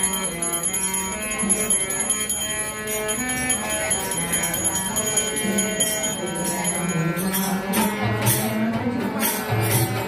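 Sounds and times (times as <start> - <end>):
brass hand bell ringing: 0.0 - 8.0.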